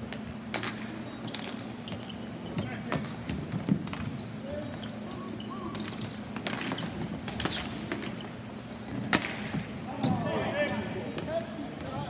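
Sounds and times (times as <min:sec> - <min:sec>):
hockey sticks and ball clacking: 0:00.1 - 0:04.2, 0:05.1 - 0:10.2.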